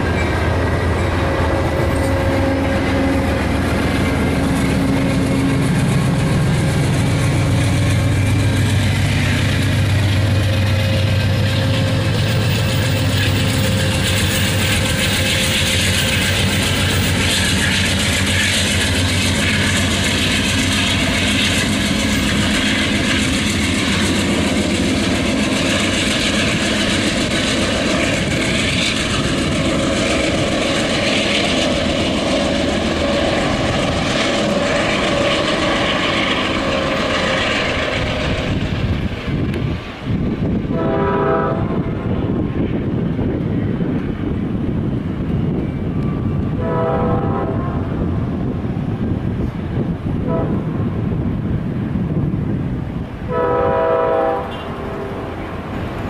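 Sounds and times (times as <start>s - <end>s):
locomotive diesel engine drone: 0.0s - 40.0s
train rolling noise: 0.0s - 56.0s.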